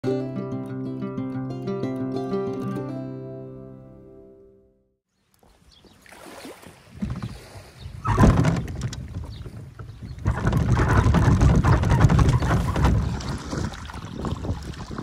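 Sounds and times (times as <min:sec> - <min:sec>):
wind buffeting microphone: 0:06.8 - 0:15.0.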